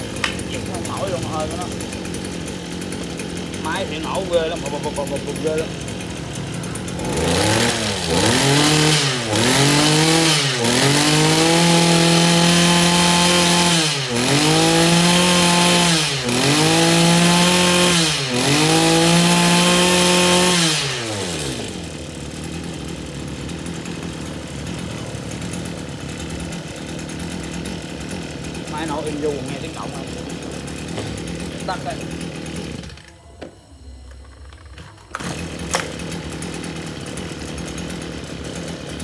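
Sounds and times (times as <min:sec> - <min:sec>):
brush cutter engine revving: 0:00.0 - 0:33.2, 0:34.2 - 0:39.0.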